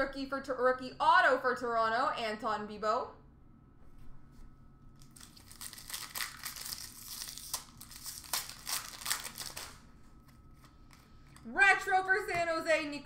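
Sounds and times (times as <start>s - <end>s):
foil wrapper tearing and crinkling: 5.0s - 9.8s.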